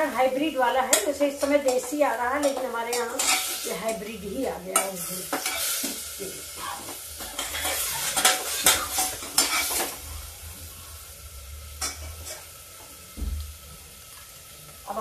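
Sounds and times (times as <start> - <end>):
food sizzling in oil: 0.0 - 15.0
metal spoon scraping a pot: 0.9 - 4.0, 4.8 - 10.0.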